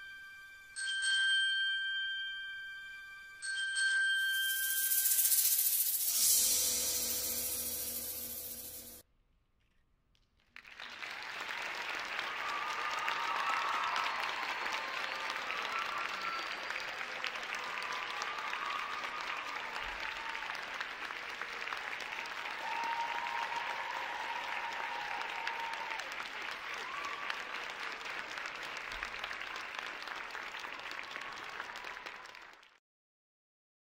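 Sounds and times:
audience applauding: 4.9s - 9.0s, 10.6s - 32.8s.

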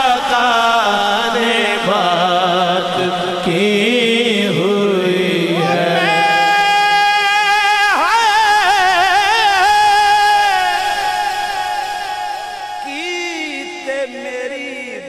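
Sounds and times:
man singing melismatic notes: 0.0s - 15.0s
lower voice holding notes: 5.5s - 7.4s.

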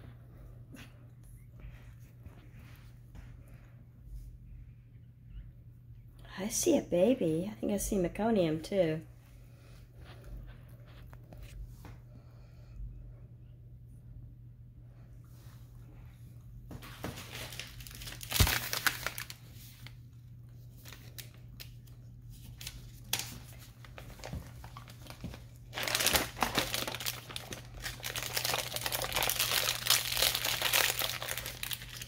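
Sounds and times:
steady low hum: 0.0s - 32.0s
plastic crinkling: 16.8s - 20.0s, 20.7s - 32.0s.

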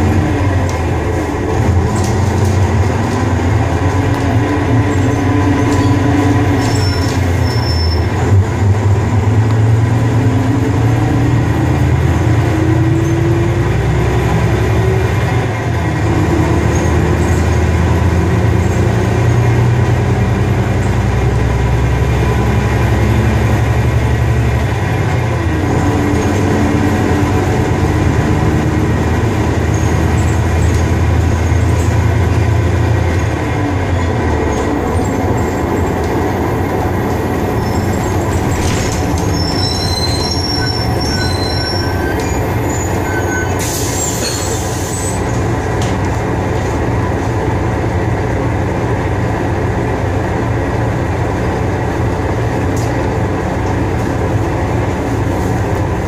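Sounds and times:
bus body rattle: 0.0s - 8.7s, 25.0s - 47.5s
bus engine drone: 0.0s - 56.0s.

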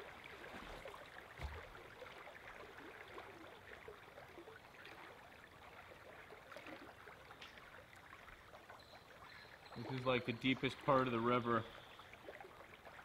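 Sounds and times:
shallow river babbling: 0.0s - 13.0s
soft low thump: 1.4s - 1.8s.

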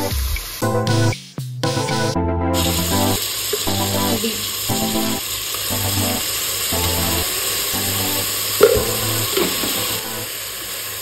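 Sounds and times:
vegetables sizzling in hot oil: 0.0s - 0.6s, 2.6s - 11.0s
background music: 0.0s - 10.3s
sharp knock: 8.6s - 9.7s.

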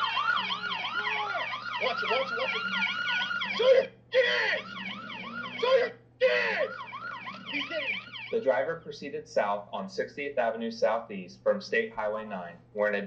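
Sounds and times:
police siren yelping: 0.0s - 8.6s.

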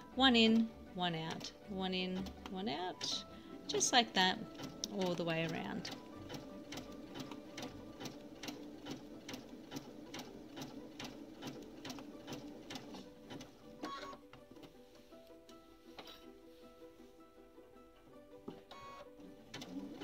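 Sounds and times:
sewing machine ticking: 0.6s - 14.7s, 18.7s - 20.0s.

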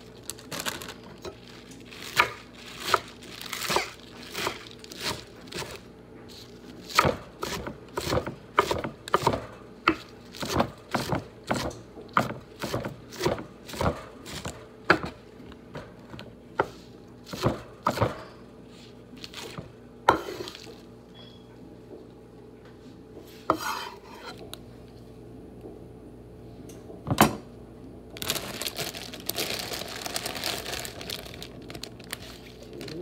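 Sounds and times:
knife chopping on wooden board: 6.9s - 15.2s, 16.6s - 18.3s.

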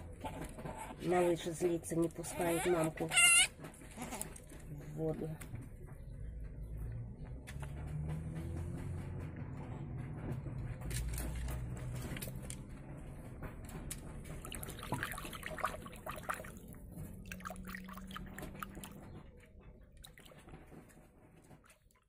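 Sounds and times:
animals lapping water: 14.0s - 22.0s.

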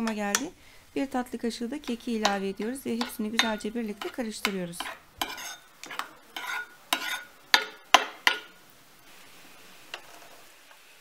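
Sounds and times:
spoon scraping sauce in bowl: 1.8s - 7.3s.

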